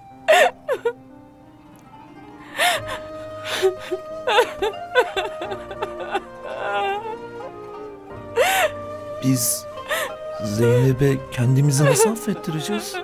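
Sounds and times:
soft music with held notes: 0:00.0 - 0:13.0
woman sobbing: 0:00.3 - 0:01.0, 0:02.5 - 0:07.6, 0:08.3 - 0:08.9, 0:09.8 - 0:13.0.

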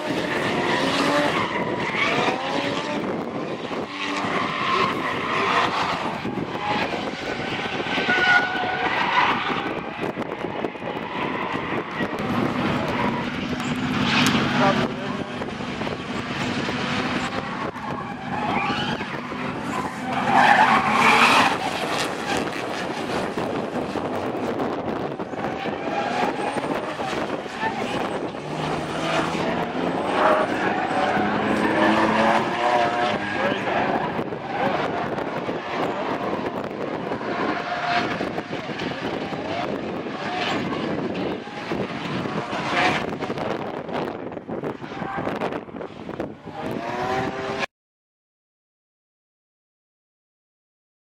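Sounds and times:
car engine running hard: 0:00.0 - 0:47.6
tyre squeal: 0:17.2 - 0:23.2.

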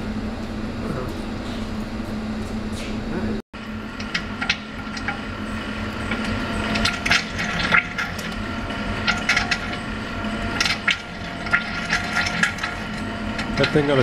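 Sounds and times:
steady drive hum: 0:00.0 - 0:14.0
oil pump gurgling and clicking: 0:03.8 - 0:14.0.

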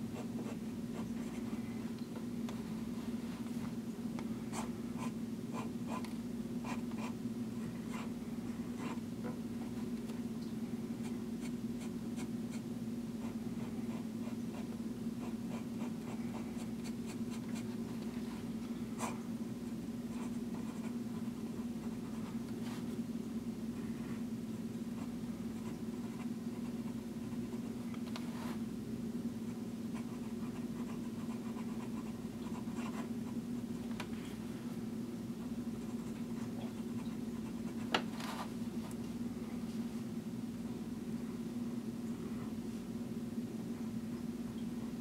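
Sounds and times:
low background hum: 0:00.0 - 0:45.0.

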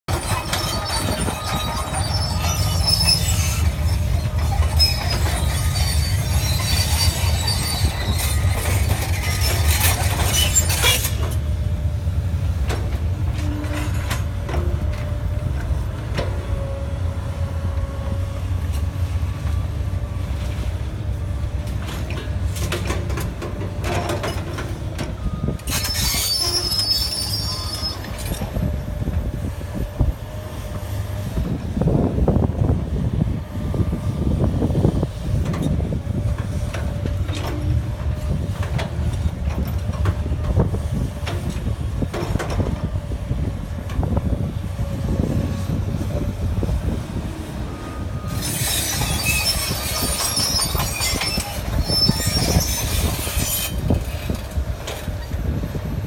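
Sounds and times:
high metallic squeals and scraping: 0:00.1 - 0:11.4, 0:13.3 - 0:15.0, 0:23.8 - 0:28.8, 0:47.7 - 0:55.3
excavator diesel engine running: 0:00.1 - 0:56.0.

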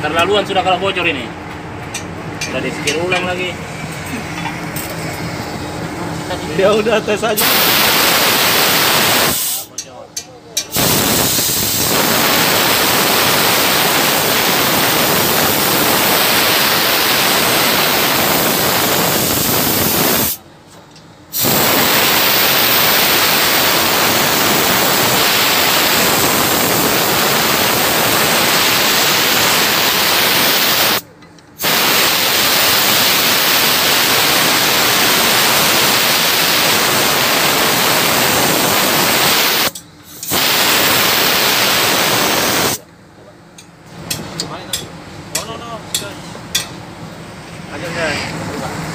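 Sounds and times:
compressed air blow gun hissing: 0:07.4 - 0:09.7, 0:10.7 - 0:20.4, 0:21.3 - 0:31.0, 0:31.6 - 0:42.8.

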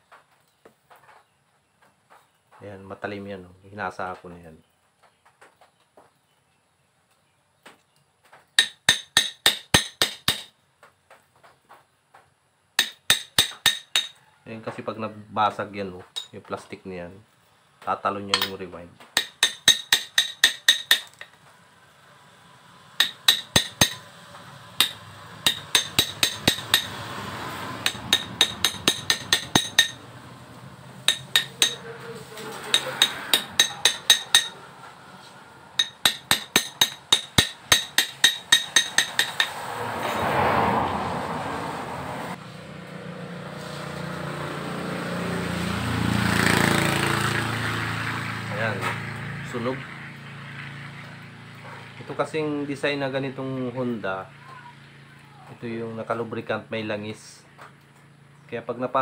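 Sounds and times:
metal-on-metal tapping: 0:08.6 - 0:10.5, 0:12.8 - 0:14.2, 0:18.3 - 0:21.4, 0:23.0 - 0:24.1, 0:24.8 - 0:27.0, 0:27.8 - 0:30.0, 0:31.0 - 0:31.8, 0:32.6 - 0:34.6, 0:35.8 - 0:40.2.

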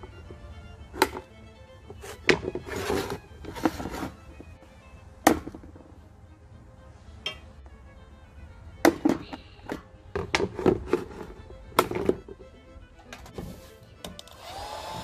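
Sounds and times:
clicks and knocks against bucket: 0:01.9 - 0:04.2, 0:08.8 - 0:12.4.

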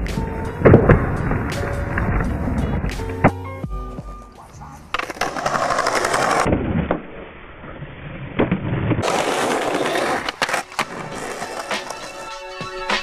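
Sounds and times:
skateboard wheels rolling on pavement: 0:00.0 - 0:03.8, 0:04.5 - 0:06.5, 0:08.4 - 0:13.0
skateboard clacks: 0:04.9 - 0:06.5, 0:09.0 - 0:12.3.

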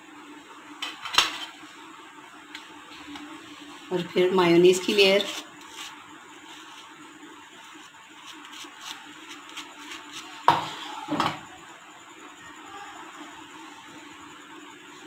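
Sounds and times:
knife scraping toast: 0:07.8 - 0:10.3.

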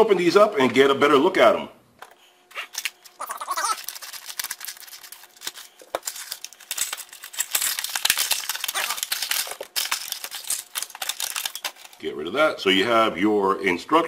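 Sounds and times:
plastic packaging crinkling: 0:02.5 - 0:12.0.

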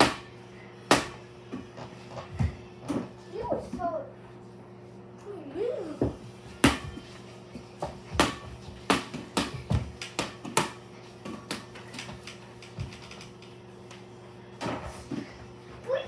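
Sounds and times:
basketball bouncing: 0:07.8 - 0:12.1.

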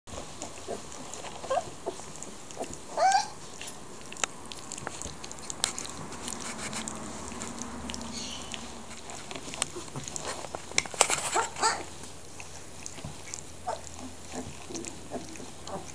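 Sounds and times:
puppies rustling on bedding: 0:00.1 - 0:15.9
puppies squeaking and whimpering: 0:00.6 - 0:15.9
puppy squealing: 0:01.4 - 0:02.0, 0:02.6 - 0:03.4, 0:06.5 - 0:08.9, 0:11.3 - 0:12.0.

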